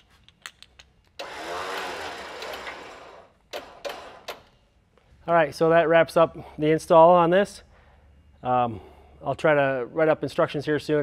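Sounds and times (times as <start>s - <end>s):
electric winch motor whine: 1.2s - 4.4s.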